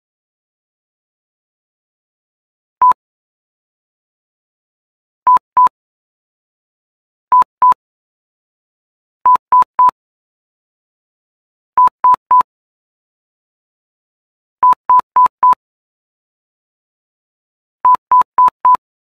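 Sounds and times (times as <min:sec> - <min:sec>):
short electronic beeps: 0:05.3 - 0:05.7, 0:07.3 - 0:07.8, 0:09.3 - 0:10.0, 0:11.8 - 0:12.5, 0:14.6 - 0:15.6, 0:17.9 - 0:18.8.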